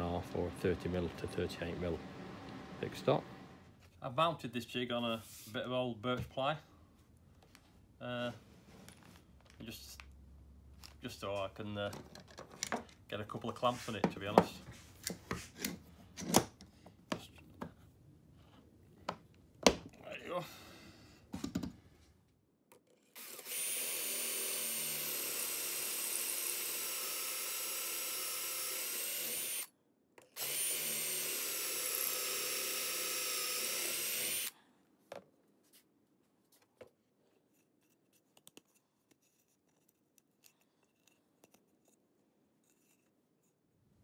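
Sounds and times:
cordless drill whine: 0:00.0 - 0:03.6, 0:23.2 - 0:29.7, 0:30.4 - 0:34.6
faint clicks and handling: 0:36.5 - 0:43.6.

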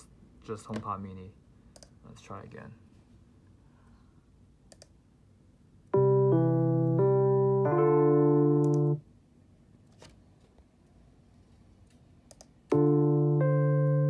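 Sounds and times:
electric piano chords: 0:05.9 - 0:09.0, 0:12.7 - 0:14.0.

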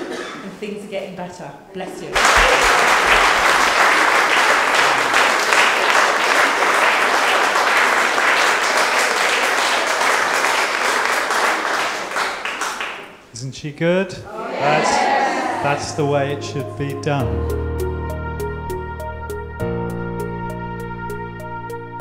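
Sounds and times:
audience applauding: 0:02.1 - 0:13.3.

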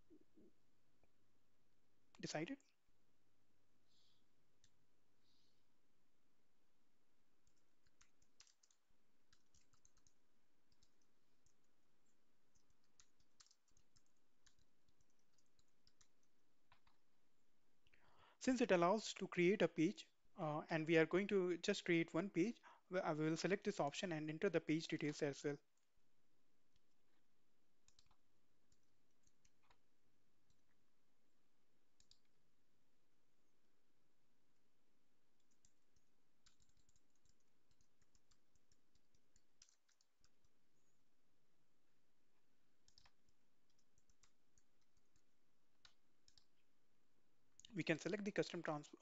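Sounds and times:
faint keyboard typing: 0:02.1 - 0:02.8, 0:03.7 - 0:05.7, 0:07.0 - 0:20.2, 0:20.8 - 0:49.0
computer mouse and keyboard clicks: 0:07.4 - 0:17.0, 0:27.8 - 0:29.9, 0:32.0 - 0:32.4, 0:35.4 - 0:41.0, 0:42.8 - 0:46.6.

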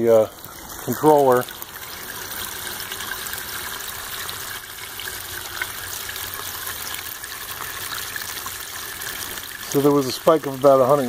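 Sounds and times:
water pouring into pool: 0:00.0 - 0:11.0.

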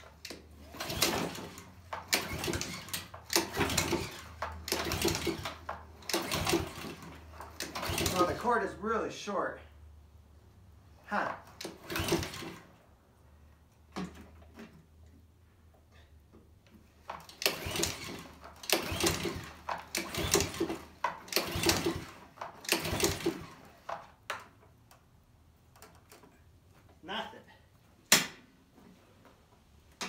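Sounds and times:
lawnmower recoil starter pulls: 0:00.0 - 0:08.7, 0:11.4 - 0:12.7, 0:17.0 - 0:24.2.

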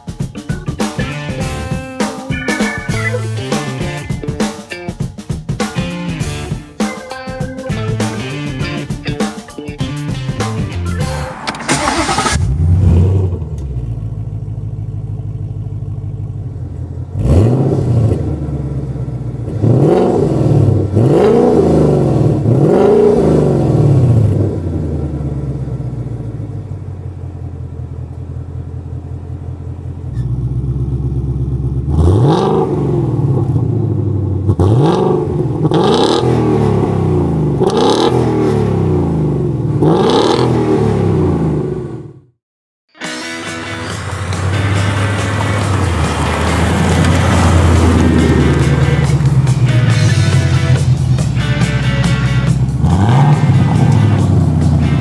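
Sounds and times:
engine revving blips: 0:09.9 - 0:14.0, 0:17.1 - 0:26.2, 0:31.6 - 0:42.3, 0:43.1 - 0:55.0
car engine idling: 0:10.1 - 0:35.8, 0:43.4 - 0:55.0
engine starting: 0:11.2 - 0:13.7.

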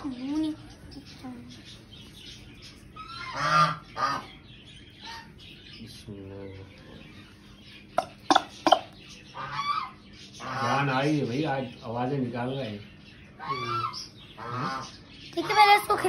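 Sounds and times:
peafowl calling: 0:02.4 - 0:05.6, 0:07.4 - 0:11.1, 0:13.3 - 0:16.0.

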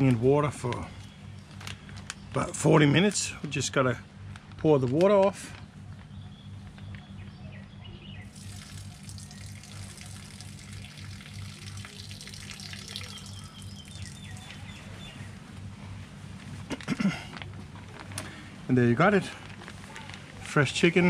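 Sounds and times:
low steady hum: 0:00.0 - 0:21.0
water pouring and splashing: 0:08.3 - 0:14.5
faint bird chirps: 0:11.7 - 0:15.3.

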